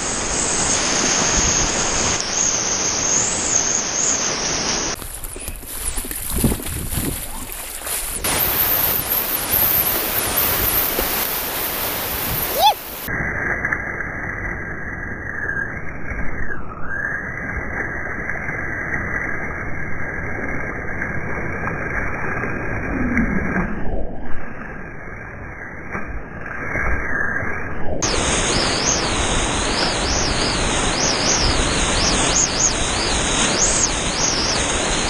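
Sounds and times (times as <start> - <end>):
whitewater rushing and splashing: 0.0 - 13.1, 28.0 - 35.0.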